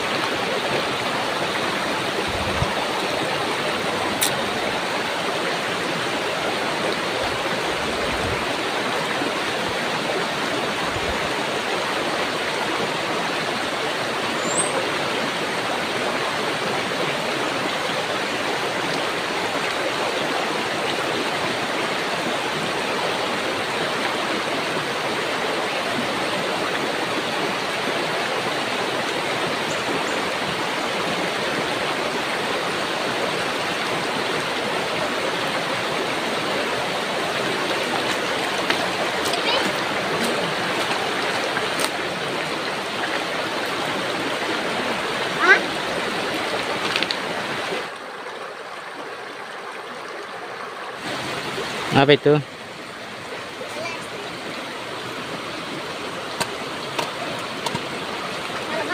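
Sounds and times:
river rushing over stones: 0.0 - 58.9.

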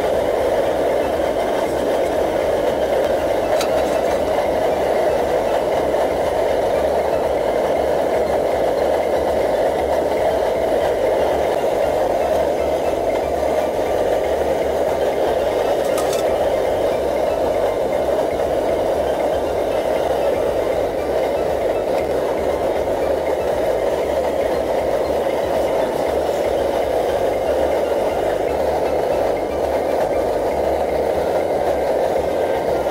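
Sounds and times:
stove burner roaring: 0.0 - 32.9.

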